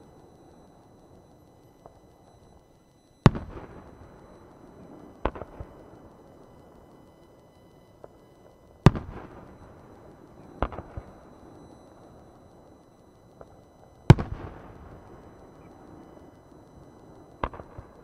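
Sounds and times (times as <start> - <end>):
small firework pops: 4.8 - 5.9, 8.8 - 9.5, 10.4 - 11.2, 13.4 - 14.8, 17.4 - 18.0
firework shells booming: 10.6 - 11.1.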